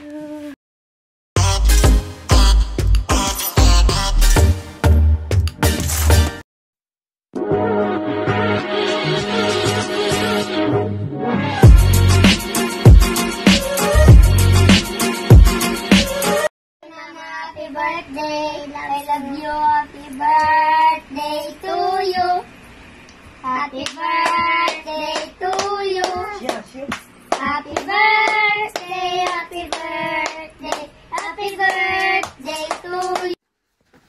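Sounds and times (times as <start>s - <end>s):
boys singing together: 23.5s - 26.4s, 27.4s - 33.4s
hands clapping: 23.8s - 33.4s.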